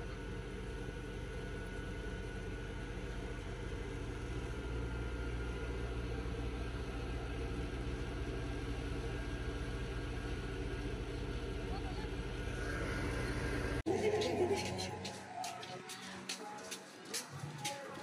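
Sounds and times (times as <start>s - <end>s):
threshing machine engine running: 0.0s - 13.8s.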